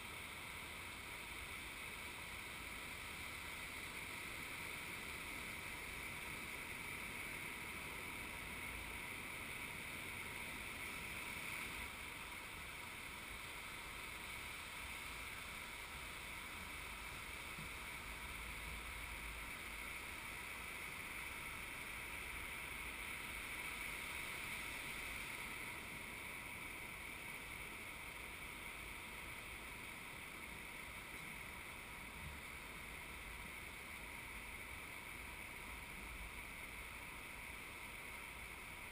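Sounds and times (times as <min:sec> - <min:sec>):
surf hissing: 0:00.0 - 0:38.9
wind: 0:00.0 - 0:38.9.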